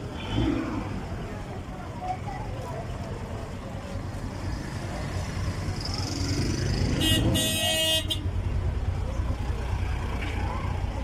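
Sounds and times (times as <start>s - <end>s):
street traffic engines: 0.0s - 11.0s
vehicle horn blast: 7.0s - 8.2s.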